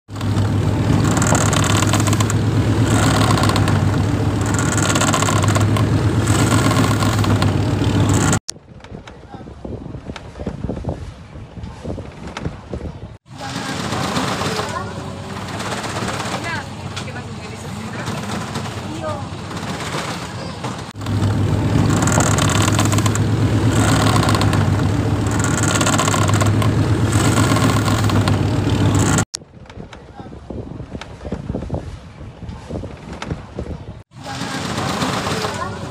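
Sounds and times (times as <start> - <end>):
wind: 0.0 - 35.9
churning water rushing: 0.1 - 8.4, 13.2 - 29.4, 34.1 - 35.9
boat engine humming: 0.1 - 8.5, 13.3 - 29.4, 34.1 - 35.9
sea noise: 0.1 - 8.5, 13.2 - 29.4, 34.0 - 35.9.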